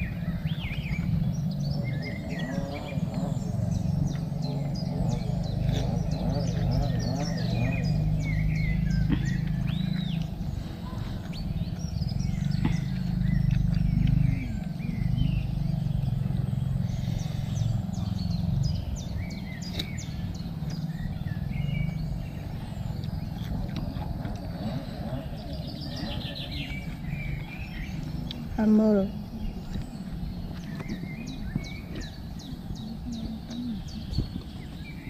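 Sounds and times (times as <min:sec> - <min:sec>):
small birds chirping: 0:00.0 - 0:35.0
person chewing juicy fruit: 0:08.9 - 0:16.4, 0:22.4 - 0:25.2.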